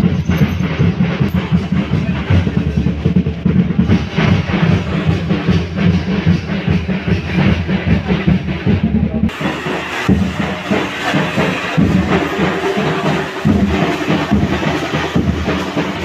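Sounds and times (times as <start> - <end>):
music with rapid heavy drumming: 0.0 - 16.0.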